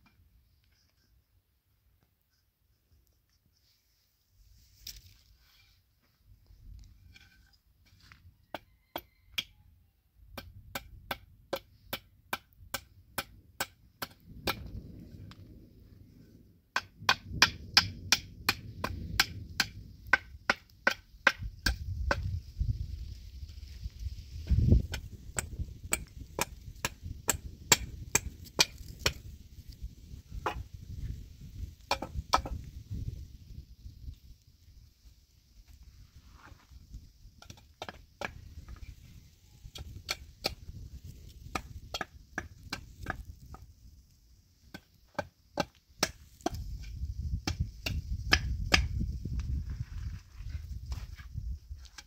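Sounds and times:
hatchet chopping wood: 0:10.3 - 0:14.7, 0:16.8 - 0:22.3, 0:24.9 - 0:29.2, 0:30.4 - 0:30.6, 0:31.9 - 0:32.6, 0:39.8 - 0:40.6, 0:41.5 - 0:43.6, 0:44.7 - 0:49.0.

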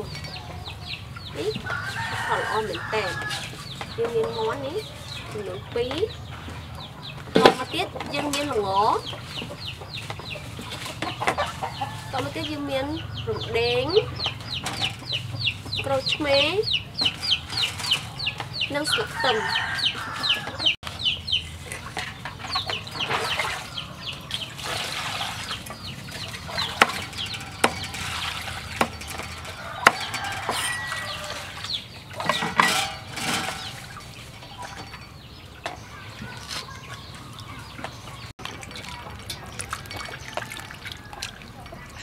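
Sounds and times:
birds calling: 0:00.0 - 0:42.0
water splashing in metal bowl: 0:21.7 - 0:35.1, 0:36.9 - 0:42.0.

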